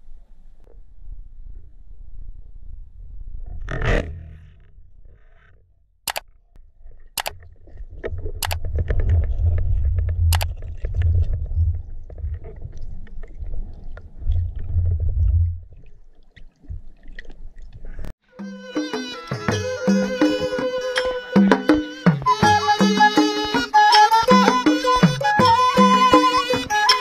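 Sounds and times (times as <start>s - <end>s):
sharp clicks: 6.1s - 6.3s, 7.2s - 7.4s
muffled underwater rumble: 6.6s - 18.1s.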